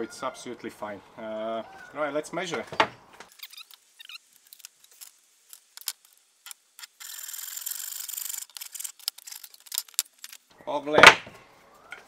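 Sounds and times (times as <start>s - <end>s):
tape measure and wood clicking: 4.5s - 10.4s.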